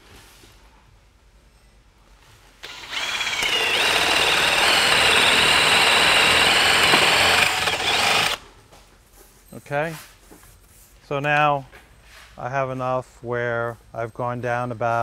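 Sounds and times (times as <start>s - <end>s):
electric drill boring into wood: 2.6s - 8.4s.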